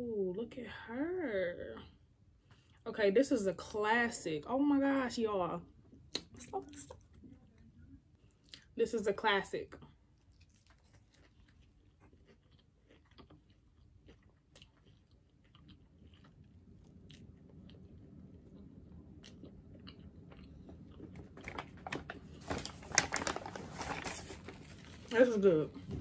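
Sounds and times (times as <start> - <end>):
chewing with mouth clicks and crunches: 6.9 - 8.7, 9.8 - 22.4
paper rustling: 21.4 - 25.4.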